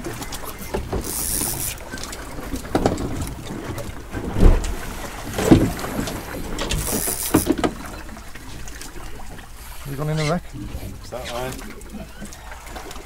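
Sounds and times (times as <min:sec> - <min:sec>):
water slapping against boat hull: 0:00.0 - 0:09.6.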